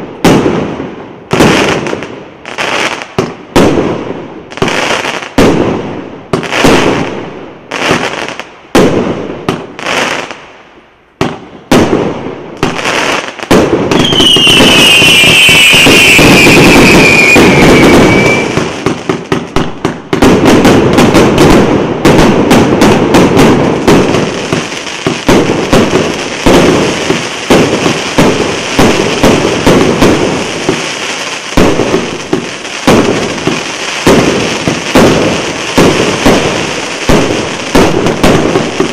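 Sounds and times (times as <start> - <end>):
firework shots and bursts: 0.0 - 10.6, 11.2 - 38.9
firework crackling: 11.7 - 38.9
falling whistle: 14.0 - 18.6.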